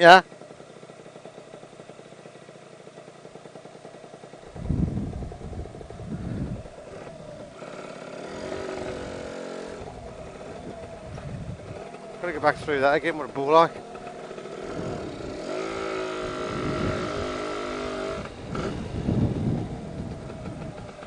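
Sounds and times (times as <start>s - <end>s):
scooter engine running and revving: 0.0s - 21.0s
short low rumbles: 4.5s - 21.0s.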